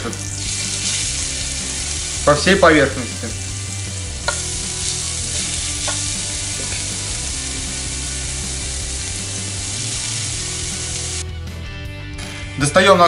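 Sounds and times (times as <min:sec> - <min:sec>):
potato sizzling in oil: 0:00.0 - 0:11.2
light spoon tap: 0:04.2 - 0:04.5.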